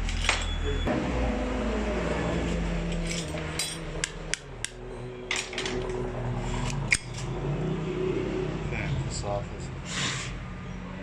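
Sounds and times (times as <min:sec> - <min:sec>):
metal clicks of hand tools: 0:06.6 - 0:07.3.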